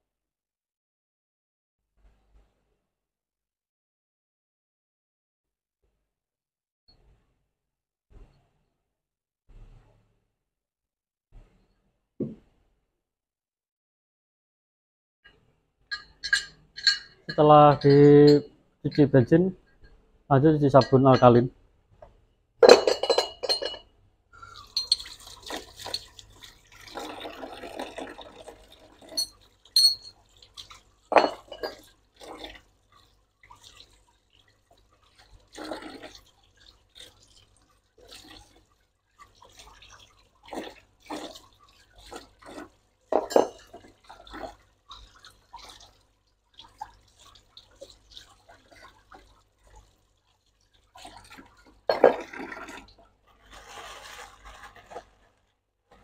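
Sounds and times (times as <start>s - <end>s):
running tap: 24.4s - 53.2s
water splashing and sloshing: 24.4s - 56.0s
metal parts clinking: 29.2s - 30.1s.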